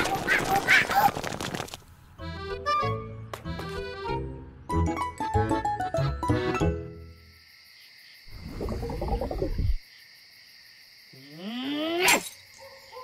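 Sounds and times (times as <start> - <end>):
cartoon low rumbling: 8.3 - 9.8.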